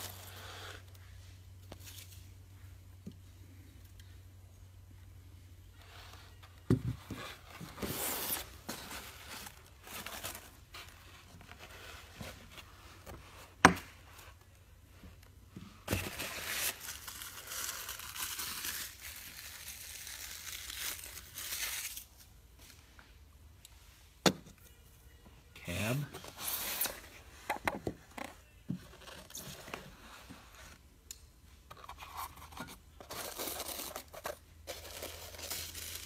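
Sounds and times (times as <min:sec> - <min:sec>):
plastic packaging crinkling: 0:16.0 - 0:22.1.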